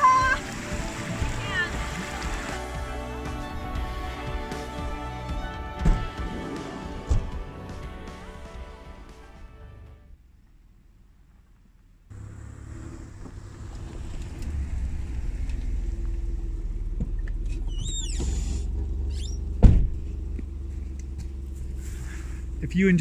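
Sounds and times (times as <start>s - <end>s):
van engine rumbling: 0.0s - 23.0s
sharp thump: 7.0s - 7.5s, 19.6s - 20.0s.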